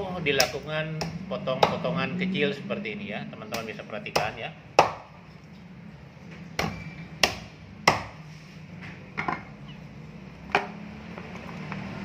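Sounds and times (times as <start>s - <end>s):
cleaver chopping on wooden block: 0.4s - 1.8s, 3.5s - 5.2s, 6.6s - 8.2s.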